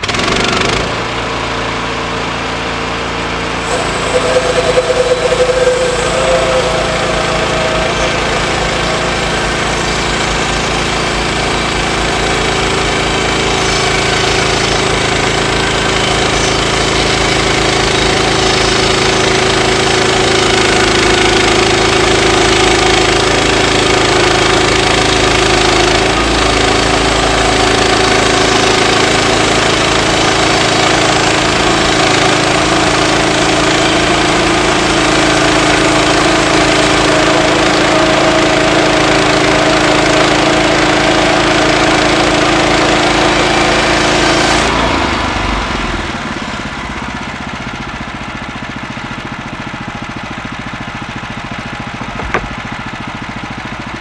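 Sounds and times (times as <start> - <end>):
small gas engine running: 0.0 - 54.0
bandsaw blade cutting log: 51.8 - 52.7.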